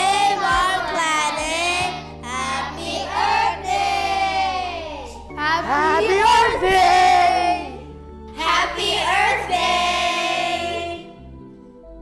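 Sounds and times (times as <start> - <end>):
background music: 0.0 - 12.0.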